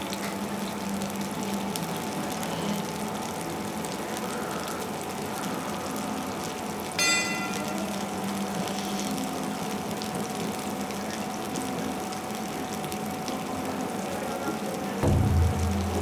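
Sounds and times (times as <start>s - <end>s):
loud low hum: 15.0s - 16.0s.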